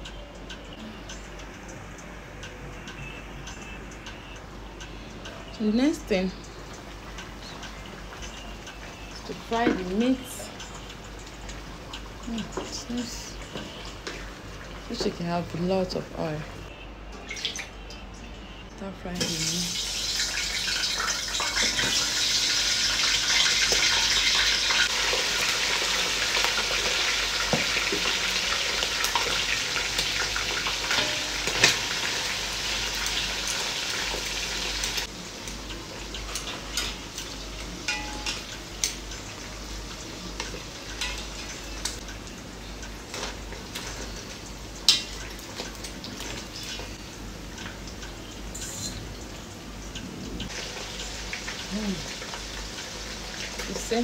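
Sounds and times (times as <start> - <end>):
chicken frying in hot oil: 0.0 - 18.0, 18.8 - 54.0
metal tongs clicking against pot: 35.4 - 39.3, 40.4 - 44.0.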